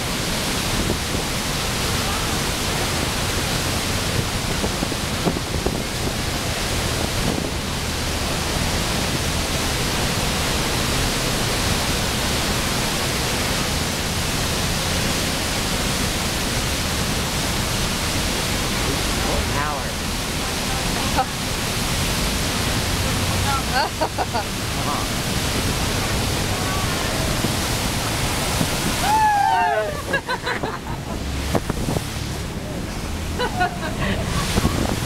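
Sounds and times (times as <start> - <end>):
waterfall rushing: 0.0 - 35.0.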